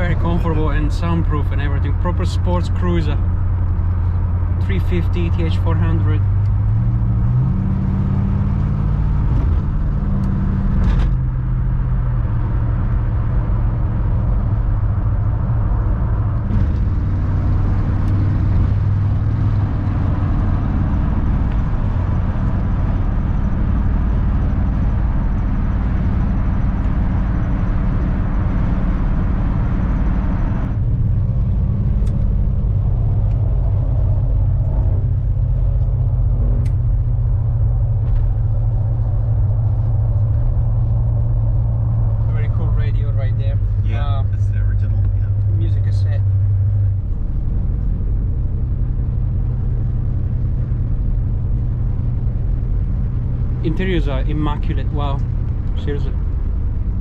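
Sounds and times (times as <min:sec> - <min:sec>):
car engine low rumble: 0:00.0 - 0:57.0
road and tyre noise: 0:00.0 - 0:57.0.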